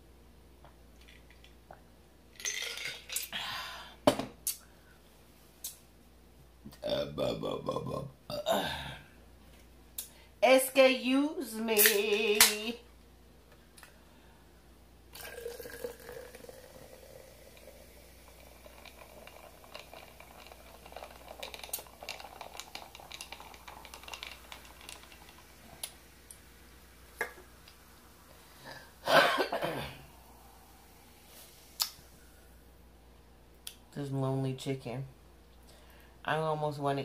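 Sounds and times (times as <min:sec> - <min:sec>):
soda splashing into a jar: 0:15.1 - 0:26.3
foam fizzing and crackling: 0:17.4 - 0:27.6.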